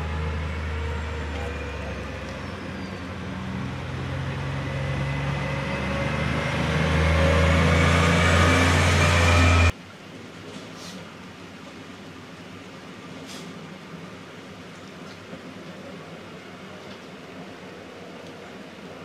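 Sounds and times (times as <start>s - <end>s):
locomotive engine running: 0.0s - 9.7s.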